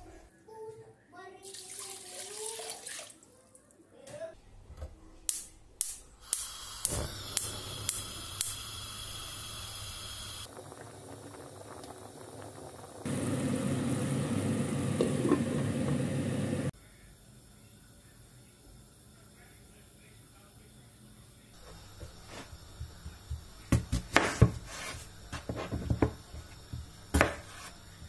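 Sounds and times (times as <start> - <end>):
spark igniter clicking: 5.3 - 10.4
gas hiss: 6.2 - 16.8, 21.6 - 28.0
water boiling and bubbling: 6.5 - 16.7, 21.6 - 28.0.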